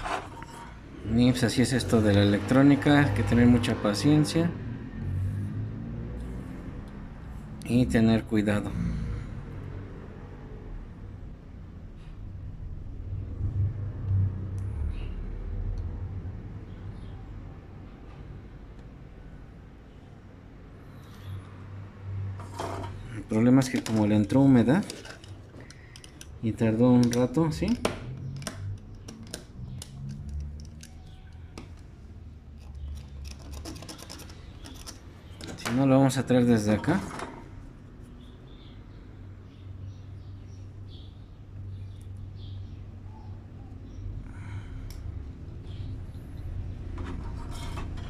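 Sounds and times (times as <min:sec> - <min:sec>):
soldering iron tip scraping: 0:00.0 - 0:00.8.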